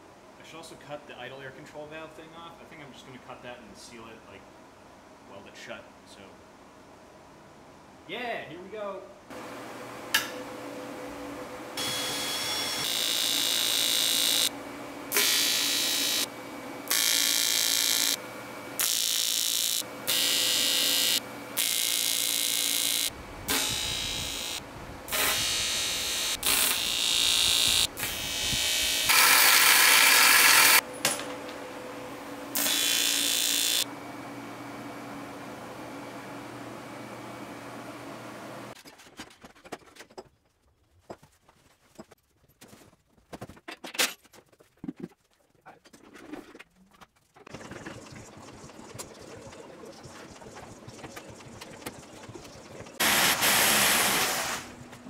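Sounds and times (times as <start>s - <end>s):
welder arc crackling buzz: 11.8s - 30.8s, 32.5s - 33.9s.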